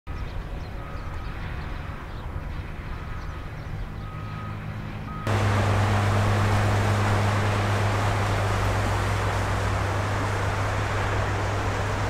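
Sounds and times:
truck rumbling through water: 0:05.1 - 0:12.0
low hum: 0:05.3 - 0:12.0
tyres throwing up water hiss: 0:05.3 - 0:12.0.

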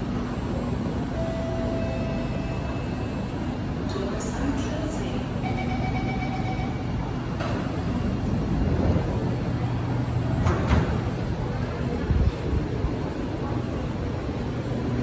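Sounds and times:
steady warning tone: 0:00.0 - 0:10.4
train low hum: 0:00.0 - 0:15.0
train doors shutting knock: 0:10.3 - 0:11.2.

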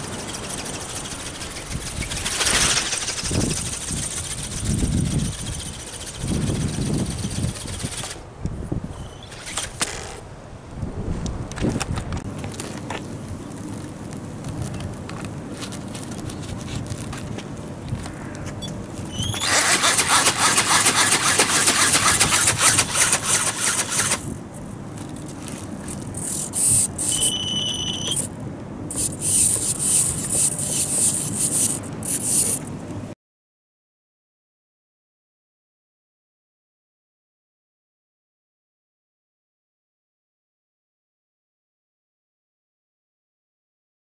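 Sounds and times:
motor and flapping wings whirring: 0:00.0 - 0:10.3, 0:10.9 - 0:33.1
wind rumbling on microphone: 0:00.0 - 0:32.0
short high beep: 0:27.0 - 0:28.2.

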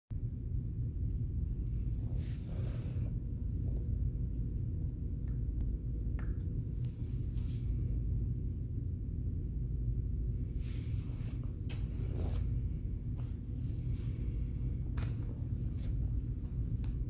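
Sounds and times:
low background rumble: 0:00.1 - 0:17.0
soft rustles: 0:10.5 - 0:17.0.

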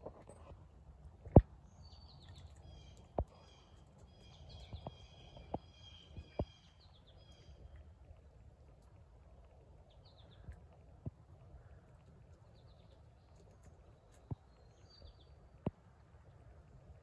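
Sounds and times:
beaver chewing crunching clicks: 0:00.2 - 0:16.4
birds singing: 0:01.7 - 0:07.8, 0:09.8 - 0:10.7, 0:11.6 - 0:15.8.

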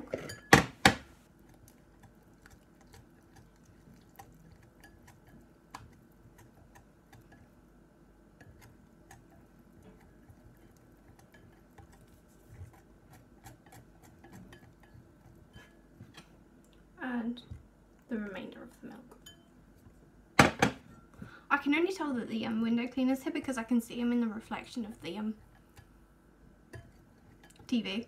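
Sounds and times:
whisk clicking against bowl: 0:08.4 - 0:15.1.

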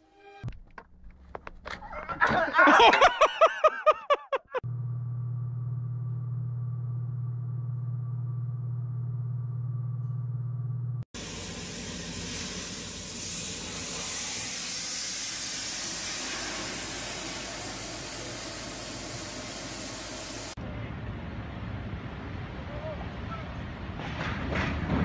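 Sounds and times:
steady low hum: 0:04.7 - 0:13.6
water hissing from broken pipe: 0:11.2 - 0:20.6.

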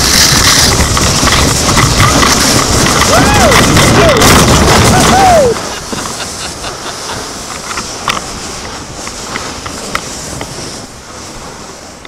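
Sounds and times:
sharp ticks and knocks: 0:00.0 - 0:04.8
kayak hull sliding over snow: 0:00.0 - 0:12.0.

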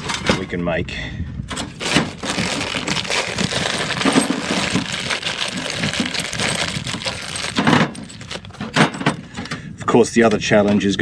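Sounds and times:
small metal parts clinking: 0:01.5 - 0:09.3
plastic bag crinkling: 0:01.7 - 0:08.6.

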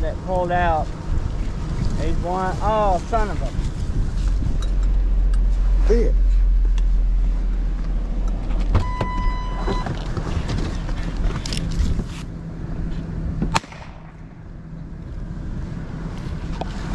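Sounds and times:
wind on microphone: 0:00.9 - 0:12.2
car door chime: 0:08.7 - 0:09.9.

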